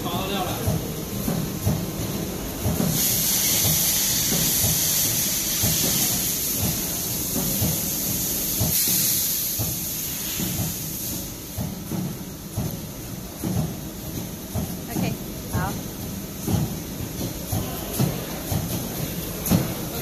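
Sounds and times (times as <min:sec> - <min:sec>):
compressed air hissing: 0:02.8 - 0:11.5.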